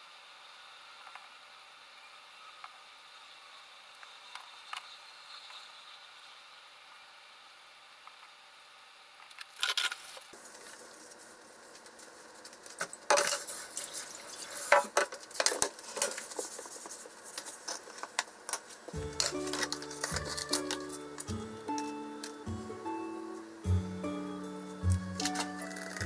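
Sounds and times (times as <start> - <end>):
background music: 19.0 - 26.0.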